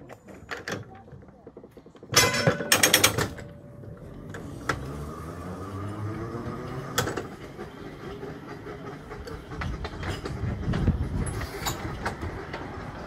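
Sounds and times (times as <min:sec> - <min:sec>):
tram running rumble: 0:00.0 - 0:13.0
wheel clicks over track: 0:01.5 - 0:05.0
tram clattering knocks: 0:01.8 - 0:13.0.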